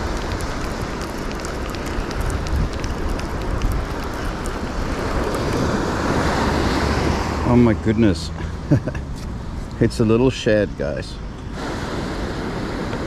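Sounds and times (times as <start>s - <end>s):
wind buffeting microphone: 0.0s - 7.9s
surf washing on shore: 0.0s - 9.0s, 11.5s - 13.0s.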